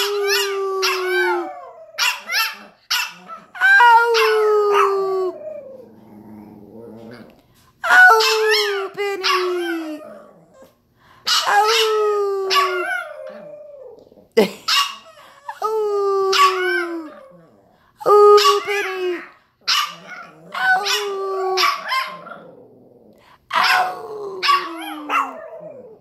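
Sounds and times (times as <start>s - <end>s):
small dog howling: 0.0s - 6.0s, 11.4s - 14.1s, 18.2s - 22.4s, 23.5s - 26.0s.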